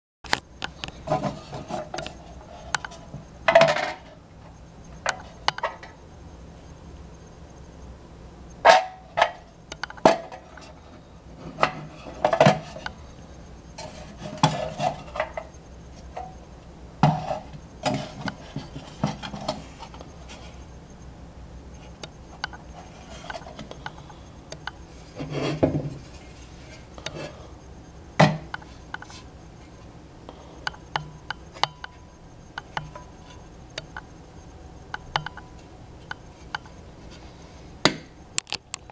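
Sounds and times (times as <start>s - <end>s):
metal scraping and rubbing: 1.0s - 3.2s, 13.8s - 15.6s, 24.8s - 27.4s.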